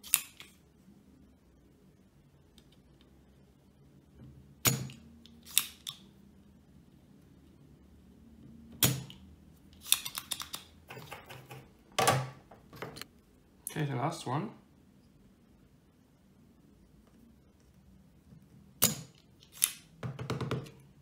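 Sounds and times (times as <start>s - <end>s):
tools clicking and rattling: 9.9s - 11.7s.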